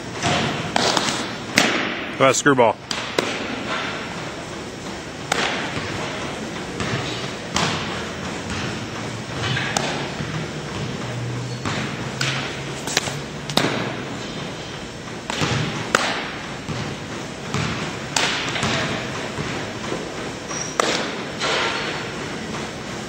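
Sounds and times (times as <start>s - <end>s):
ball hitting leather gloves: 5.3s - 5.9s, 9.7s - 10.8s, 11.7s - 14.0s, 15.3s - 16.9s, 17.5s - 19.5s, 20.8s - 21.5s.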